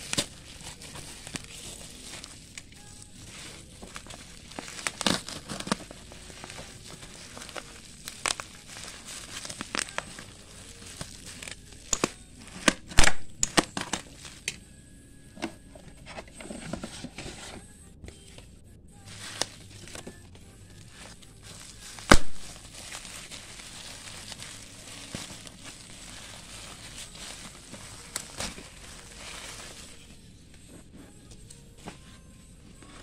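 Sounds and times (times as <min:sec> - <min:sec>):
bubble wrap crinkling: 0:00.0 - 0:14.6, 0:19.0 - 0:33.0
plastic tearing: 0:00.0 - 0:14.6, 0:19.1 - 0:30.2.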